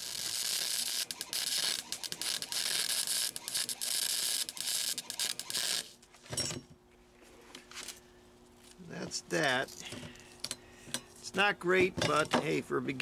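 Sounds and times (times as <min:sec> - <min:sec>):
welder arc crackling and sizzling: 0:00.0 - 0:06.0.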